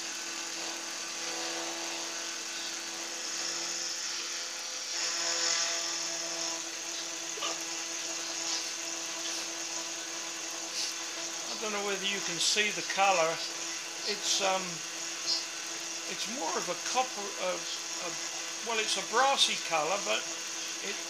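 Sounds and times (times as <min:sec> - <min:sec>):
milling machine motor whine: 0:00.0 - 0:21.0
cutting hiss: 0:04.9 - 0:21.0.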